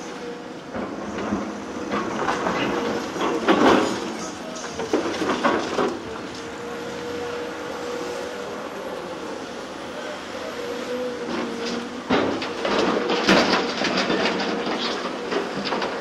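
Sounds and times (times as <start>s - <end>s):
excavator engine and hydraulics whine: 0.0s - 16.0s
clatter of debris knocking: 0.8s - 6.0s, 11.6s - 16.0s.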